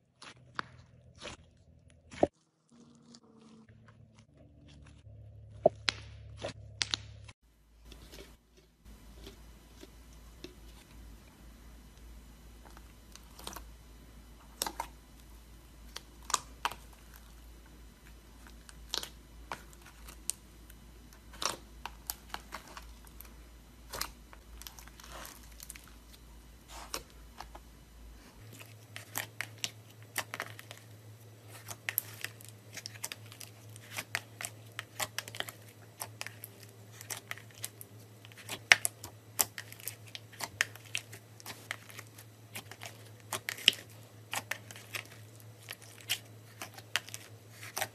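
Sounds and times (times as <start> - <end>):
slime squishing with clicks and pops: 31.5 - 47.9.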